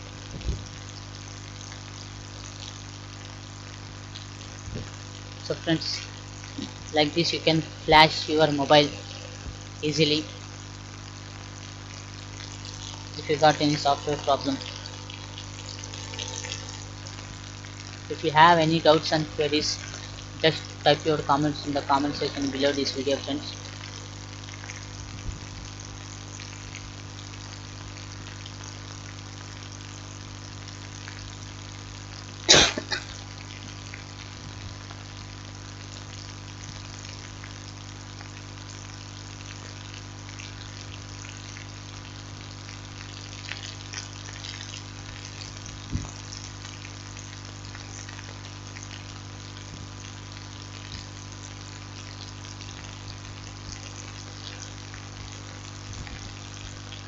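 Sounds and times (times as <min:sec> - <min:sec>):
steady hiss: 0:00.0 - 0:38.9
low electrical hum: 0:00.0 - 0:57.0.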